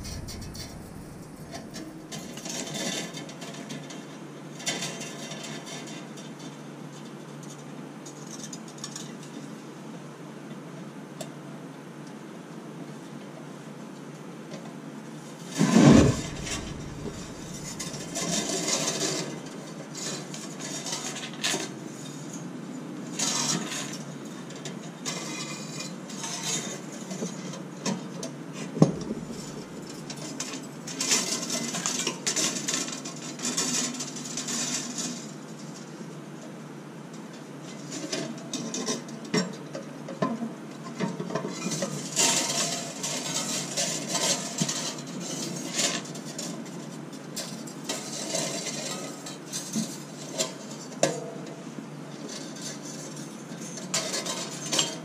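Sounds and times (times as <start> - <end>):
wire scraping through metal grid: 0.0 - 2.4, 15.6 - 18.5, 28.8 - 30.2.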